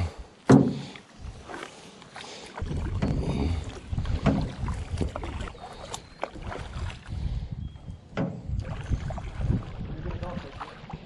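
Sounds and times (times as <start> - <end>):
paddle strokes splashing: 0.0 - 7.4, 8.6 - 11.0
light knocks on canoe: 0.5 - 0.9.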